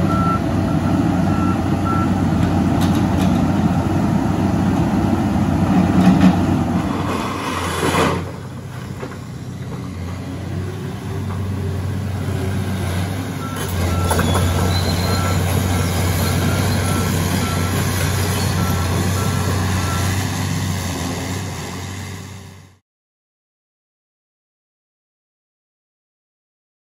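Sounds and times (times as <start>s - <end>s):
excavator diesel engine running: 0.0s - 22.8s
travel alarm beeping: 0.1s - 2.2s, 13.4s - 20.1s.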